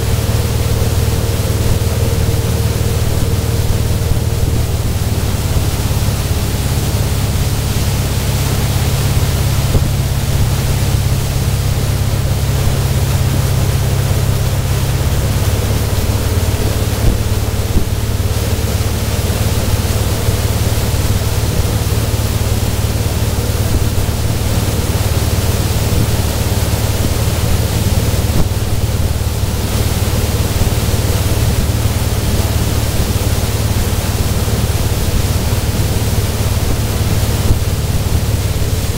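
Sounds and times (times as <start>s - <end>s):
motorboat engine drone: 0.0s - 38.9s
rushing boat wake: 0.0s - 38.9s
wind rumble on microphone: 0.0s - 38.9s.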